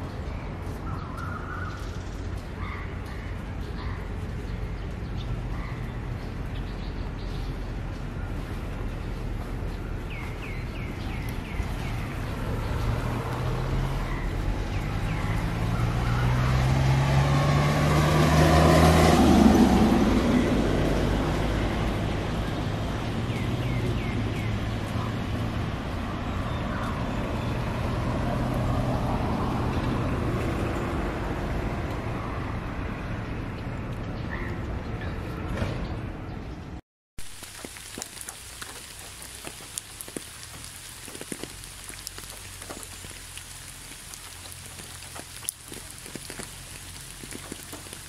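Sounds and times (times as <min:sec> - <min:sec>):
vehicle passing by: 0:10.4 - 0:34.0.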